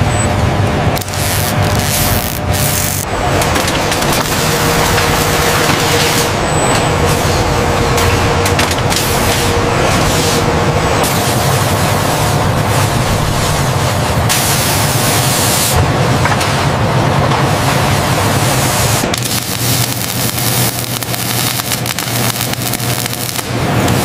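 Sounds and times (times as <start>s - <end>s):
crackling arc welding sizzle: 0.0s - 24.0s
low machine hum: 0.0s - 24.0s
hiss of spraying sparks: 1.0s - 3.0s, 14.3s - 15.8s, 18.8s - 24.0s.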